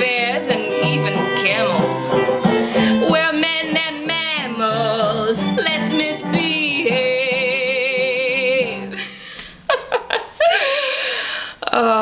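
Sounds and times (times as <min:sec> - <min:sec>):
woman singing show tune: 0:00.0 - 0:02.0, 0:02.9 - 0:09.2.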